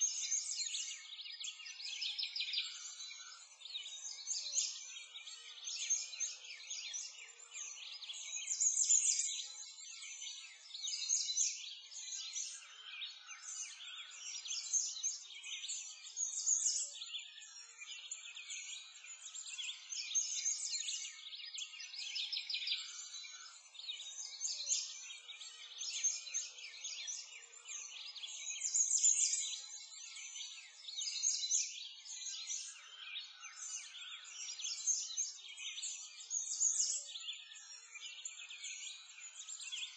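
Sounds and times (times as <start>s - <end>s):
songbirds chirping and trilling: 0.0s - 39.9s.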